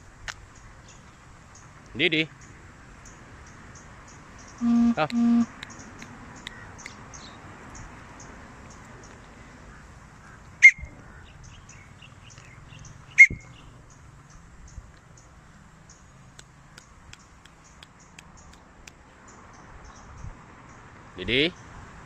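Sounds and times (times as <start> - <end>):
bird shrill calls: 10.6 - 10.9, 13.1 - 13.6.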